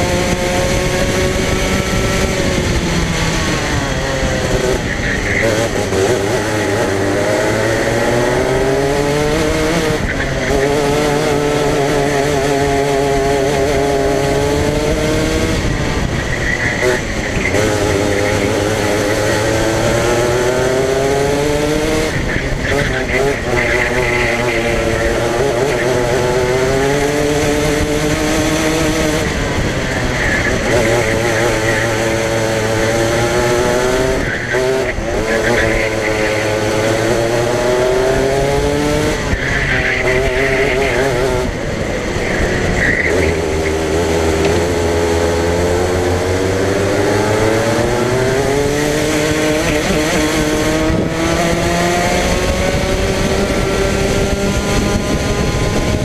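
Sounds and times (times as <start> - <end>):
racing kart engine: 0.0 - 56.0
tyre squeal: 39.0 - 41.5, 42.2 - 44.0.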